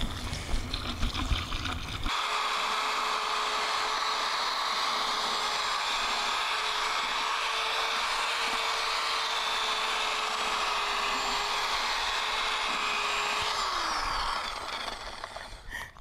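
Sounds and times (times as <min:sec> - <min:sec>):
power drill mixing mortar: 0:02.0 - 0:16.0.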